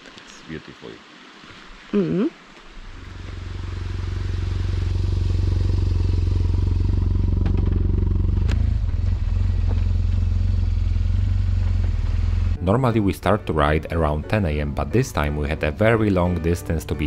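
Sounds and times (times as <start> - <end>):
motorcycle engine running: 3.0 - 12.6.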